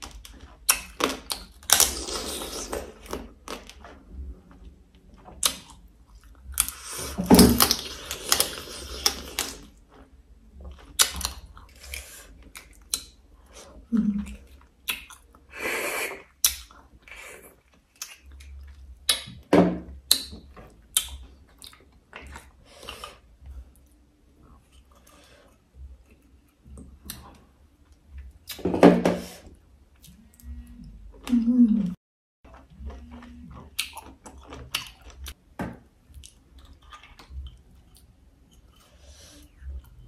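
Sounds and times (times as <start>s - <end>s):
close chewing: 32.4s - 35.4s, 36.1s - 40.0s.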